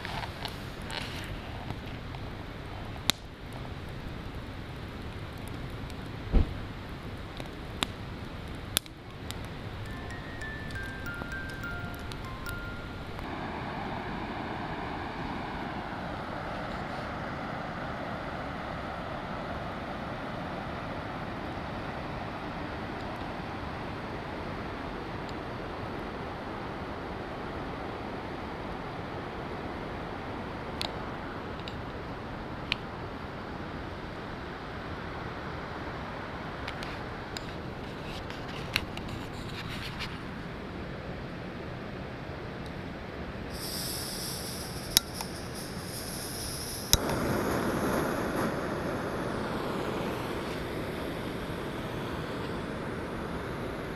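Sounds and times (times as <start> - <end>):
whitewater rushing: 9.6 - 21.9.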